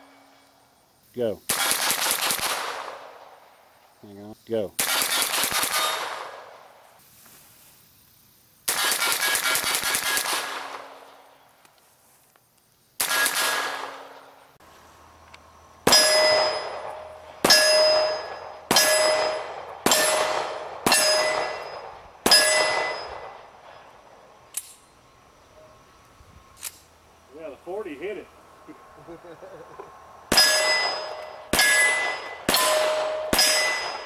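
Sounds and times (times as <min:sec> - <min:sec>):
gunshots: 0:01.5 - 0:03.4, 0:04.8 - 0:06.6, 0:08.7 - 0:11.1, 0:13.0 - 0:14.3, 0:15.8 - 0:23.5, 0:30.3 - 0:34.0
steel target plate ringing: 0:15.9 - 0:23.5, 0:30.3 - 0:34.0.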